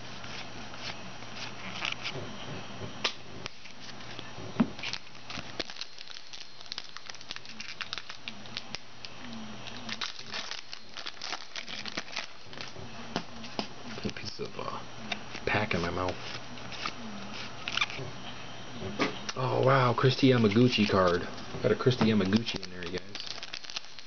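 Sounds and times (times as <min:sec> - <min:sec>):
foil wrapper crinkling and tearing: 0:04.8 - 0:12.7, 0:21.8 - 0:24.0
cards clicking and crackling: 0:04.8 - 0:14.4, 0:15.1 - 0:18.0, 0:20.4 - 0:21.2, 0:21.8 - 0:24.0.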